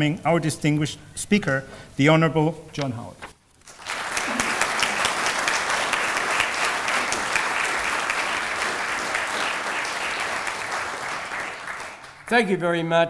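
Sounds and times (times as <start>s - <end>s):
audience applauding: 3.6s - 12.6s.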